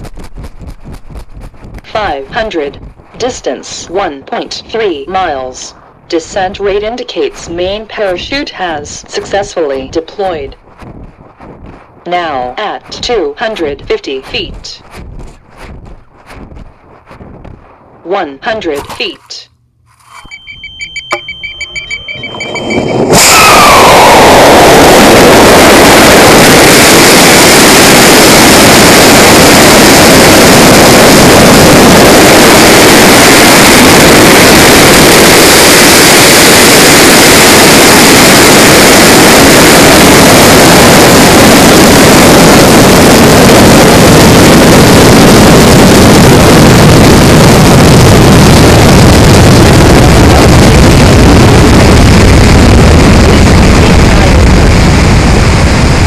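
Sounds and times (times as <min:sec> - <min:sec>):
rocket motor roaring: 0:22.3 - 0:56.0.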